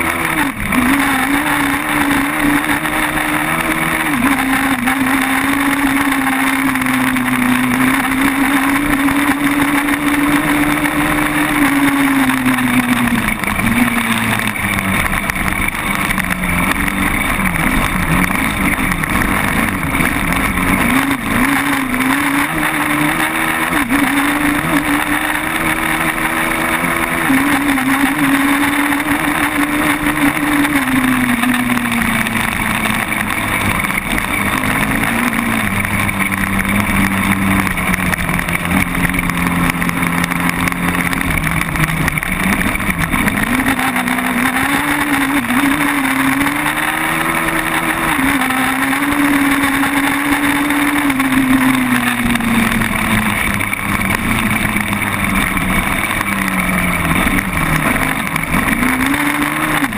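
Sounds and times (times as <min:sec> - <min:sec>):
quad bike engine revving: 0:00.0 - 0:59.9.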